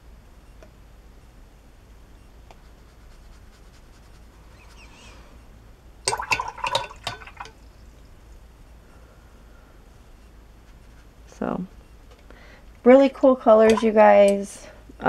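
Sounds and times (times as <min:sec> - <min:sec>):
faint brush stroke on paper: 0:02.5 - 0:05.4, 0:10.2 - 0:11.8
brush splashing in water jar: 0:06.1 - 0:07.6, 0:13.5 - 0:14.0
brush clicking against jar: 0:13.6 - 0:14.4.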